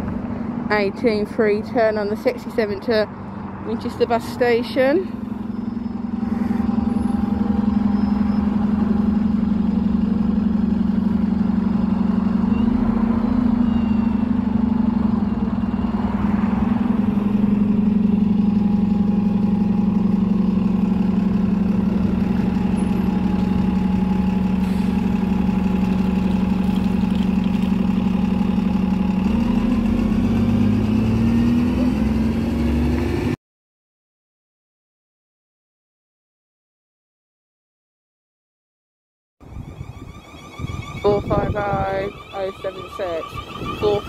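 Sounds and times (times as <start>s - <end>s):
bus diesel engine idling: 0.0s - 32.0s, 39.4s - 44.0s
bus pulling away: 0.0s - 33.4s, 39.4s - 44.0s.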